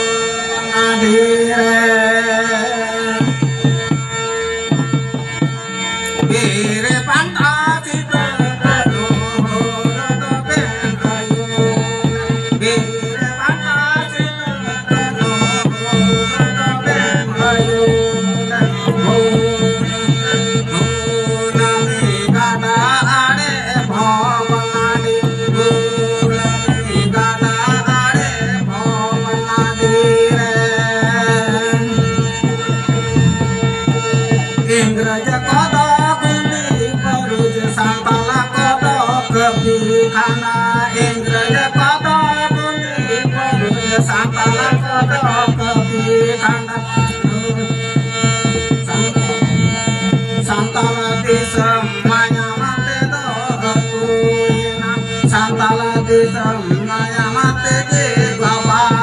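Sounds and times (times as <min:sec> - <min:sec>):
hand drums beating fast: 0:03.1 - 0:59.0
held drone note: 0:24.0 - 0:35.6, 0:46.8 - 0:51.6
wavering melody: 0:25.9 - 0:37.3, 0:48.2 - 0:51.9.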